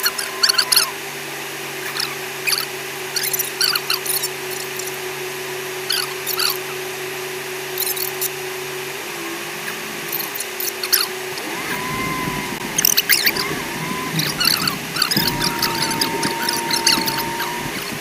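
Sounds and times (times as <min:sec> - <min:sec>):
squeaky chirps: 0:00.0 - 0:01.0, 0:01.8 - 0:05.1, 0:05.9 - 0:06.8, 0:07.8 - 0:08.4, 0:09.7 - 0:18.0
vehicle engine drone: 0:00.0 - 0:18.0.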